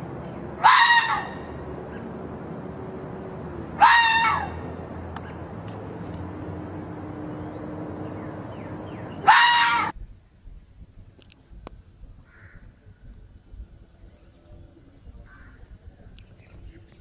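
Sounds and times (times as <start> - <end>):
fox screaming: 0.6 - 1.5, 3.8 - 4.7, 9.2 - 9.9.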